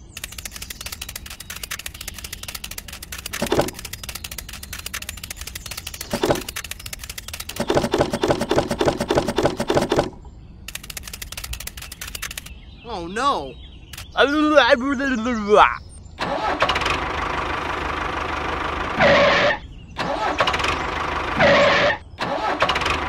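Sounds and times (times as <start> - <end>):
fast sharp clicks: 0.0 - 12.6, 13.9 - 14.2
short pitched squeaks: 19.0 - 23.0.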